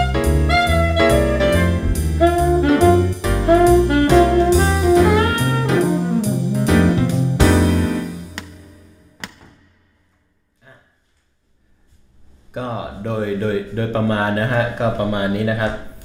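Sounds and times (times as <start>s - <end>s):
alto saxophone jazz blues line: 0.0s - 8.3s
backing track with bass and drums: 0.0s - 8.5s.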